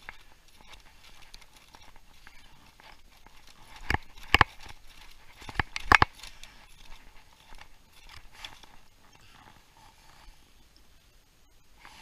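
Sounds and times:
sharp clicks and knocks: 0.0 - 8.9
faint hiss: 6.1 - 12.0.

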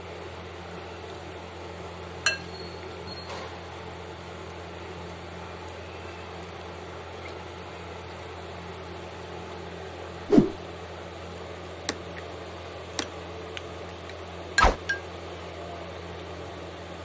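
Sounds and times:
steady low hum: 3.7 - 17.0.

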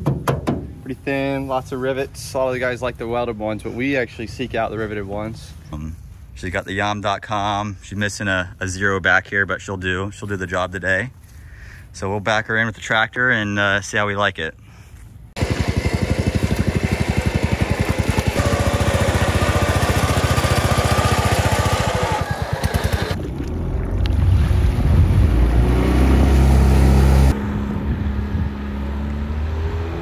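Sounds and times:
small engine pulsing: 15.4 - 23.2
outboard motor humming: 15.4 - 27.3.

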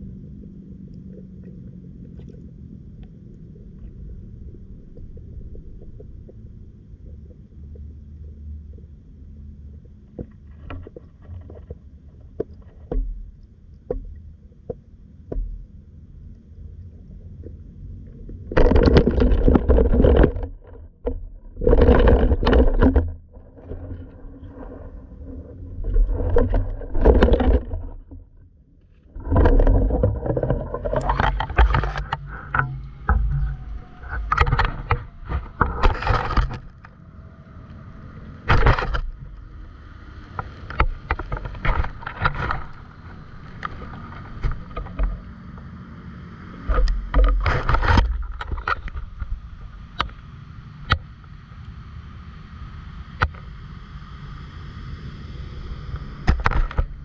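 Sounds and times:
muffled underwater rumble: 0.0 - 57.0
water splashing: 29.1 - 36.9.

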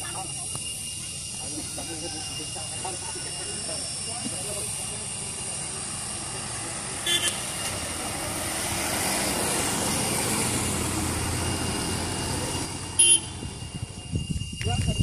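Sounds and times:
motorcycles passing: 0.0 - 14.2
small car passing: 0.0 - 14.5
road noise: 0.0 - 15.0
high-pitched horn beep: 7.0 - 7.6, 12.5 - 15.0.

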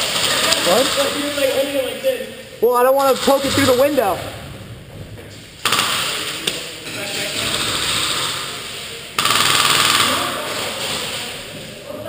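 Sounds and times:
airsoft guns firing bursts: 5.6 - 6.4, 7.3 - 11.2.

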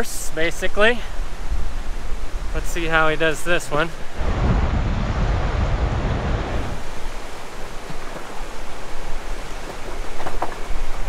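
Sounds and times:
mountain creek rushing: 0.0 - 11.0
wind buffeting microphone: 4.0 - 11.0.

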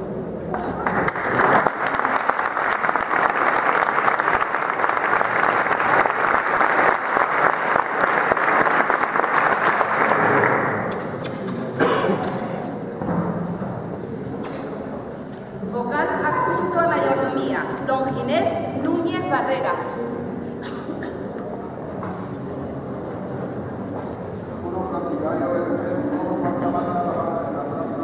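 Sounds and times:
audience applauding: 0.8 - 11.0.

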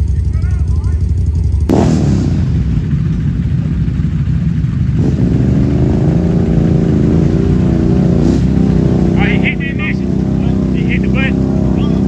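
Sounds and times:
quad engine pulling hard: 0.0 - 12.0.

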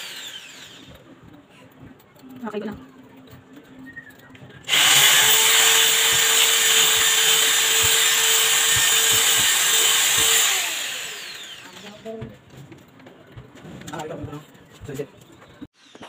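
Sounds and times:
electric drill boring into wall: 0.0 - 1.0, 4.7 - 12.0.

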